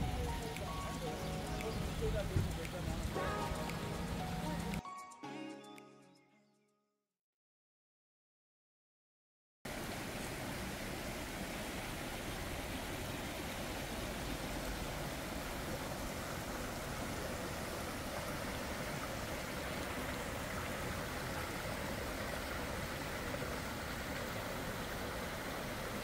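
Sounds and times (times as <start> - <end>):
stream rushing over rocks: 9.7 - 26.0.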